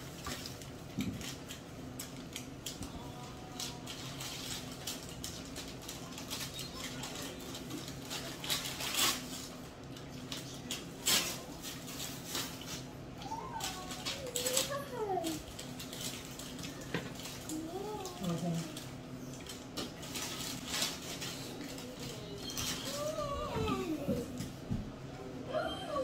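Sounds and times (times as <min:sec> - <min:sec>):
food peeling and eating: 0:00.0 - 0:24.8
rustling: 0:13.6 - 0:24.3.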